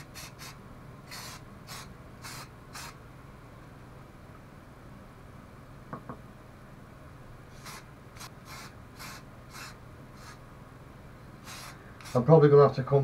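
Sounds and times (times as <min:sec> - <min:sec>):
spray can hissing bursts: 0:00.0 - 0:03.0, 0:07.5 - 0:10.4, 0:11.4 - 0:12.2.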